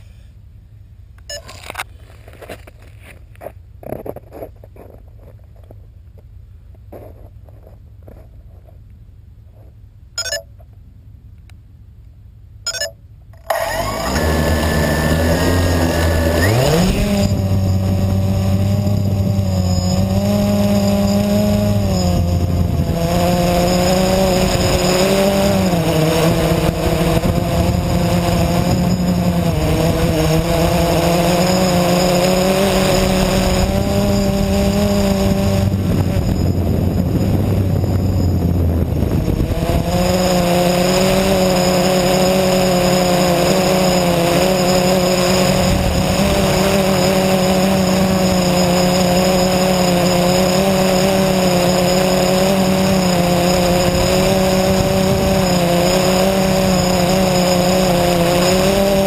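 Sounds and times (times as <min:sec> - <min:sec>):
quadcopter motors humming: 0:10.2 - 0:10.4, 0:12.7 - 0:59.0.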